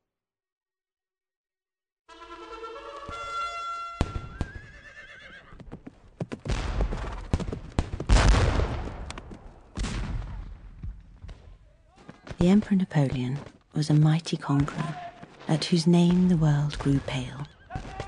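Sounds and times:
horse whinnying: 0:04.2 - 0:05.6
gunshots: 0:06.4 - 0:11.0, 0:14.5 - 0:18.0
heavy cannon fire: 0:06.5 - 0:11.0, 0:14.6 - 0:18.0.

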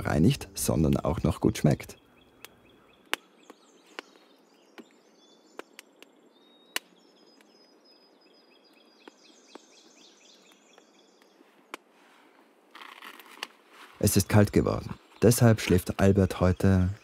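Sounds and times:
faint birdsong: 0:00.0 - 0:17.0
campfire crackling and popping: 0:00.7 - 0:07.6, 0:08.6 - 0:11.9.

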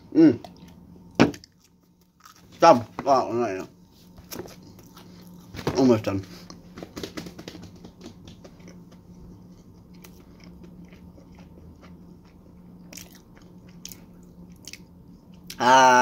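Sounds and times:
steady low hum: 0:00.0 - 0:16.0
mouth chewing food: 0:08.4 - 0:15.6.

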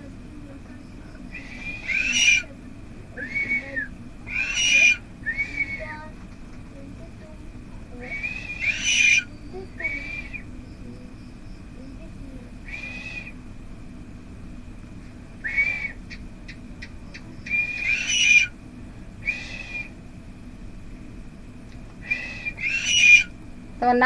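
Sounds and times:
myna whistled calls: 0:01.2 - 0:02.6, 0:03.2 - 0:06.1, 0:08.0 - 0:11.2, 0:12.6 - 0:13.4, 0:15.4 - 0:18.6, 0:19.2 - 0:20.0, 0:22.0 - 0:23.4.

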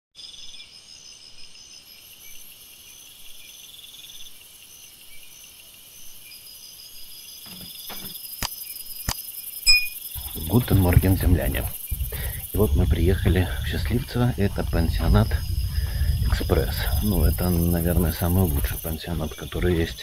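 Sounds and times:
insects chirping in trills: 0:00.2 - 0:20.0
flip-flop footsteps on gravel: 0:12.6 - 0:17.3.

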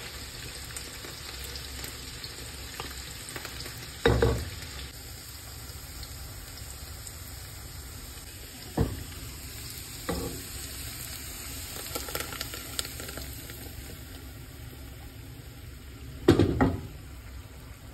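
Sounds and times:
meat sizzling in a pot: 0:00.0 - 0:17.9
knocks on a pot: 0:04.0 - 0:04.5, 0:16.3 - 0:16.9.

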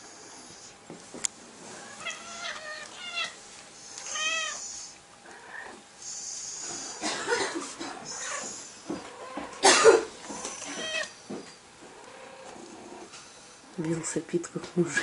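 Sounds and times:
cat meowing: 0:01.8 - 0:03.4, 0:04.0 - 0:04.6, 0:10.4 - 0:11.1.

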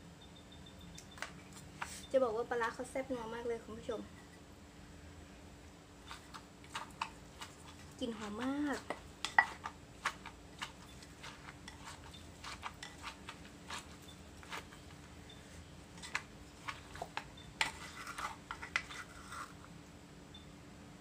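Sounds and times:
spoon scraping and tossing: 0:06.0 - 0:19.7
wooden pestle knocking in mortar: 0:08.2 - 0:14.7.

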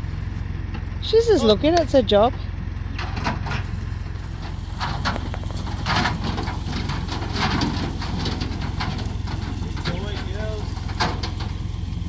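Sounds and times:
engine idling: 0:00.0 - 0:12.0
light knocks and rustles: 0:03.0 - 0:11.9.

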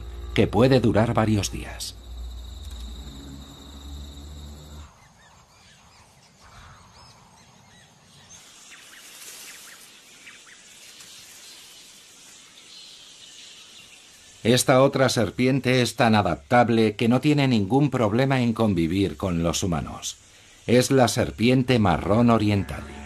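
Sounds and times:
background music: 0:00.0 - 0:04.8, 0:22.0 - 0:23.0
insects buzzing: 0:00.0 - 0:23.0.

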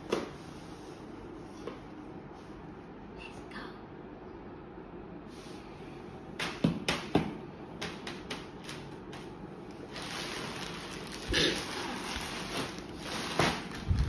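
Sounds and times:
plastic bag crinkling: 0:09.7 - 0:14.0.

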